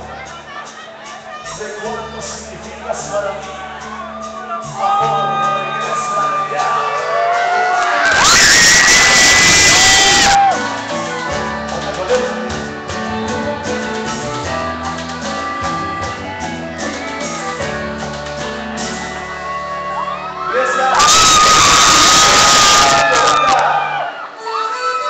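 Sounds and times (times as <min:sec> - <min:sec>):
keyboard bass: 0:00.0 - 0:25.0
percussion: 0:00.0 - 0:25.0
accordion melody: 0:09.5 - 0:20.7, 0:24.1 - 0:25.0.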